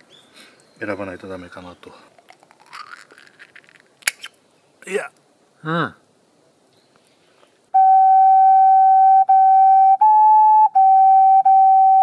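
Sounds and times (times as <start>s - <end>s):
flute-like instrument holding notes: 7.8s - 12.0s.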